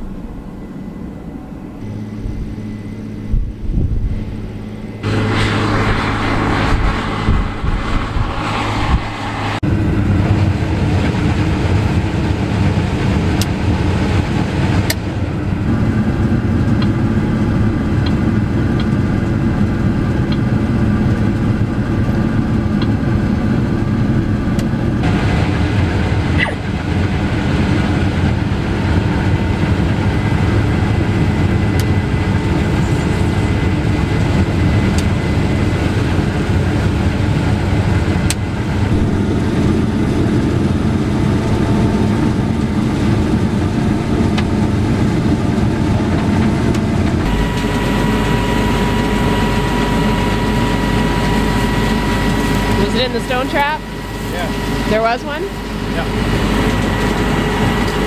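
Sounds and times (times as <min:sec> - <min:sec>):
combine harvester droning: 0:00.0 - 0:58.0.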